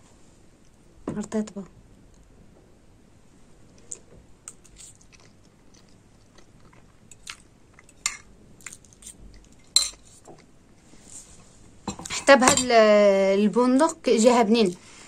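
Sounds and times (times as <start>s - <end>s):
soft crunching and clicks: 3.7s - 10.9s
person chewing: 3.8s - 10.5s.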